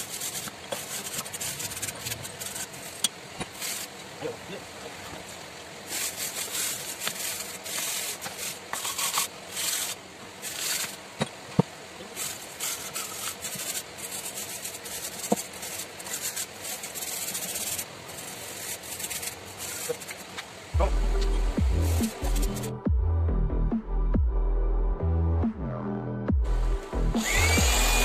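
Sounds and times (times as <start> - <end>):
wire brush scraping metal: 0.0 - 4.0, 5.8 - 11.0, 12.1 - 20.4, 21.8 - 22.8.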